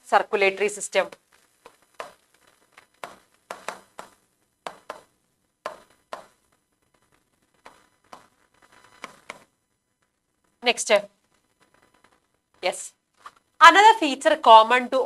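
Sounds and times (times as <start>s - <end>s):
stylus tapping on glass: 3.0s - 6.4s.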